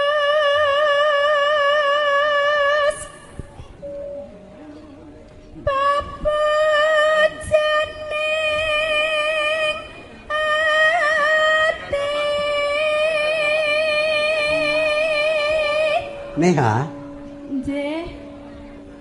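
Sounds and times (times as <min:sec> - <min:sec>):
woman singing into microphone: 0:00.0 - 0:03.4, 0:05.5 - 0:16.3, 0:17.4 - 0:18.9.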